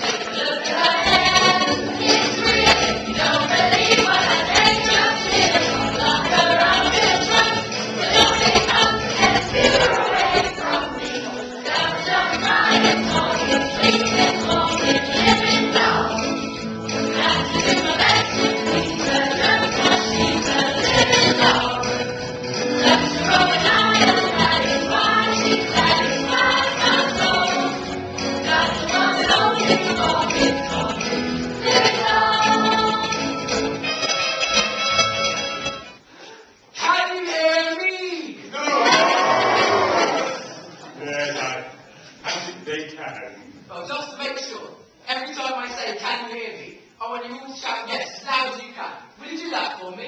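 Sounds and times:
men and women singing in chorus: 0.0 - 34.4
musical accompaniment: 0.0 - 36.1.

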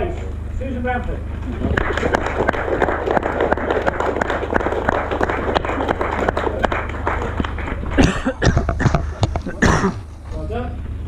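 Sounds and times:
crowd applauding: 1.4 - 9.8.

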